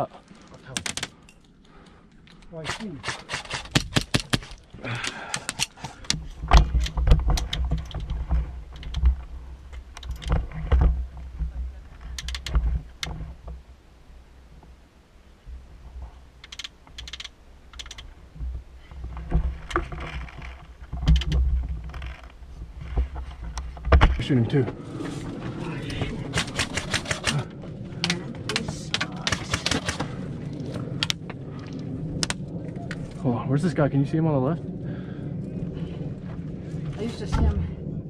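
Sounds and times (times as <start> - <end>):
gear clicks and knocks: 0.4 - 13.7, 15.8 - 24.6, 25.8 - 31.4
wind rumble on microphone: 4.6 - 38.0.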